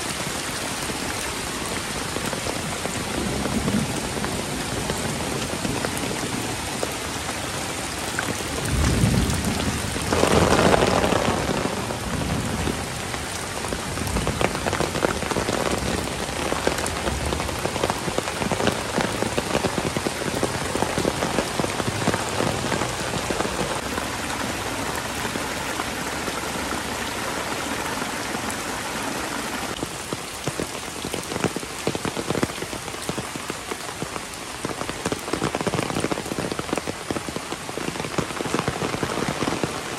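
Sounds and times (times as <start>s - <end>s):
heavy rain pouring: 0.0s - 39.9s
thunder rumbling: 8.4s - 23.8s.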